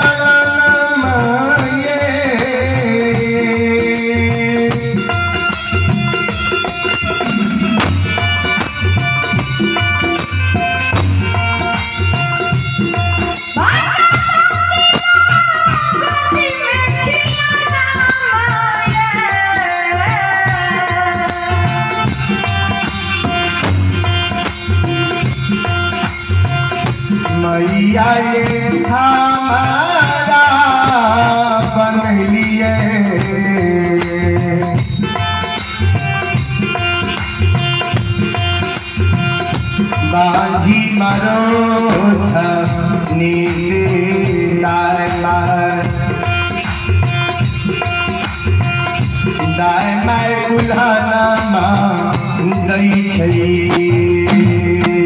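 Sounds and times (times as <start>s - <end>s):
steady percussion beat: 0.0s - 55.0s.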